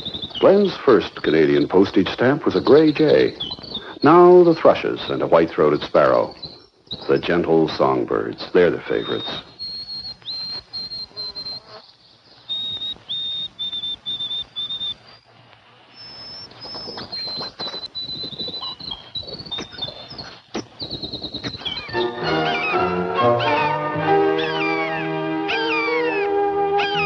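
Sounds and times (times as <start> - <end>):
sparrow song: 0.0 - 27.0
music: 21.9 - 27.0.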